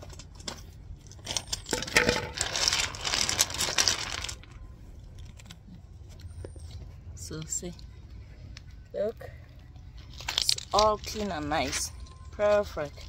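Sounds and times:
gravel stones clattering: 0.0 - 4.6, 9.8 - 13.0.

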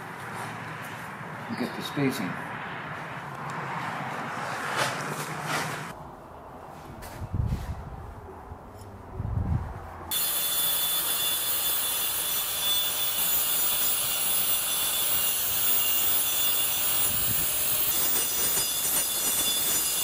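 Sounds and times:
angle grinder cutting brick: 10.1 - 20.0.

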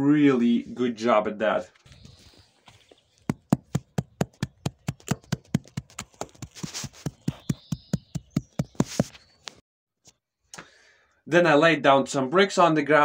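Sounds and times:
mallet knocking rapidly: 3.3 - 8.8.

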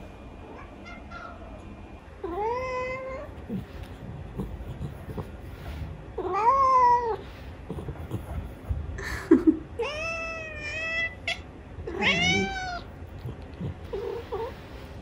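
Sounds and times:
cat meowing: 0.5 - 1.6, 2.2 - 3.4, 6.2 - 7.2, 9.8 - 12.9.

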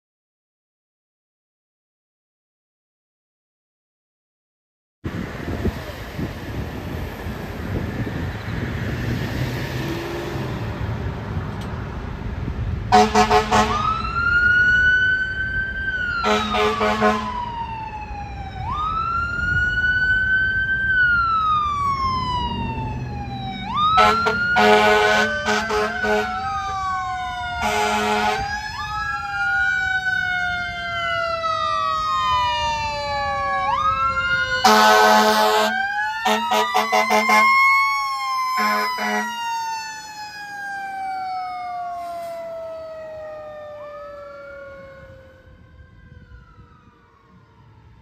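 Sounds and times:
fire engine siren wailing: 5.1 - 48.0
air horn blasts: 12.9 - 14.0, 16.2 - 17.4, 24.0 - 26.4, 27.6 - 28.5, 34.6 - 37.6, 38.6 - 39.3
lower siren tone: 12.9 - 48.0.

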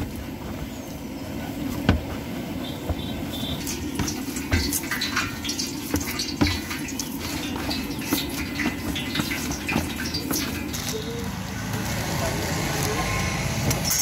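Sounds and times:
dough squelching and slapping: 1.4 - 11.0.

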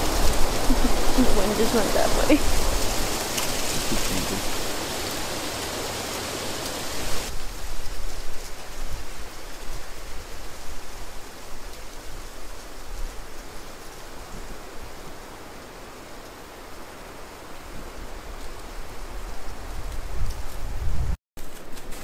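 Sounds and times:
steady outdoor rushing noise: 0.0 - 7.6.

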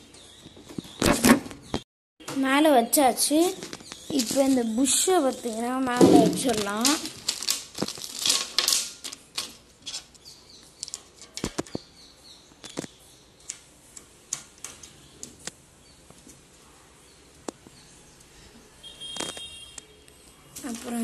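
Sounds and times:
small parts clicking on steel frame: 6.5 - 10.2.

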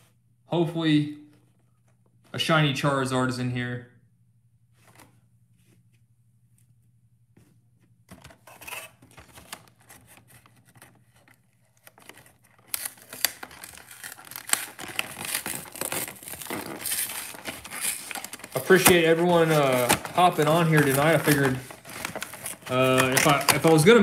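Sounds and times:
packaging rustling and clicking: 8.1 - 24.0
plastic and cardboard tearing: 8.1 - 24.0.

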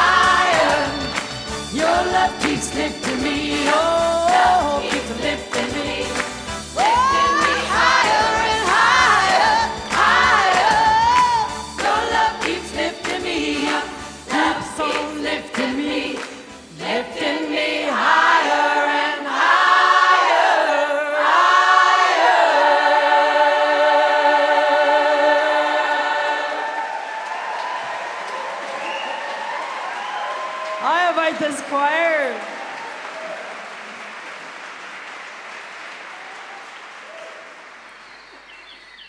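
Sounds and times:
choir singing: 0.0 - 27.8.

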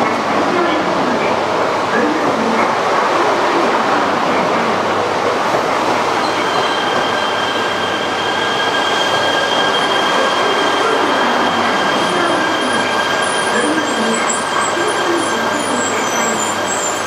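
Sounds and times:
high-pitched wheel squeal: 6.2 - 17.0.

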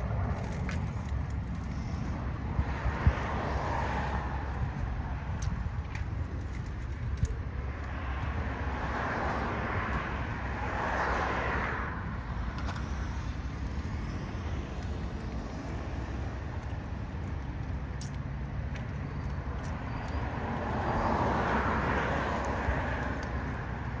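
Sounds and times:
low traffic rumble: 0.0 - 24.0.

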